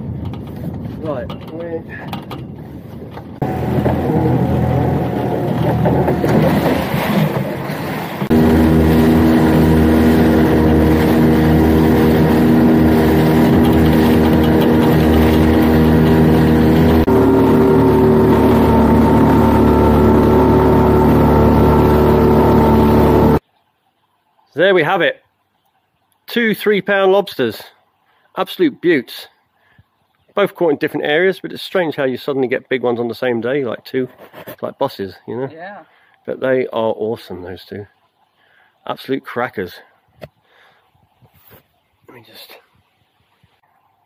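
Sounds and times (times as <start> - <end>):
wind: 0.0 - 44.0
outboard motor running: 3.4 - 23.4
water rushing: 3.4 - 23.4.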